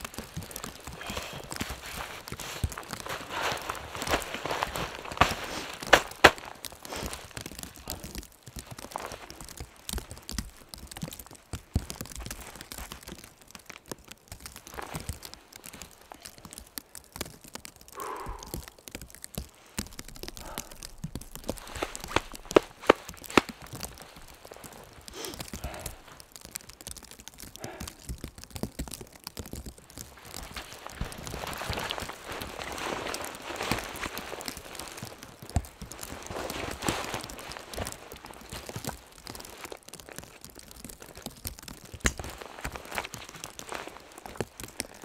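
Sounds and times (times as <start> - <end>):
clothing and gear rustling: 0.0 - 9.8, 19.5 - 26.2, 30.1 - 39.8, 42.2 - 45.0
sharp cracks: 0.0 - 45.0
boots crunching in deep snow: 0.2 - 8.1, 20.4 - 26.0, 30.2 - 39.8
heavy breathing: 0.6 - 8.2, 17.9 - 18.8, 19.5 - 23.0, 24.2 - 26.2, 27.4 - 28.1.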